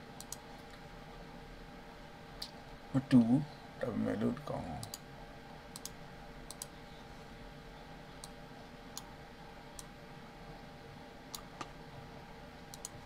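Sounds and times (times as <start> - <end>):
faint steady hum: 0.0 - 13.0
computer mouse clicking: 0.2 - 0.8, 4.8 - 5.0, 5.7 - 6.8, 11.3 - 11.7, 12.7 - 13.0.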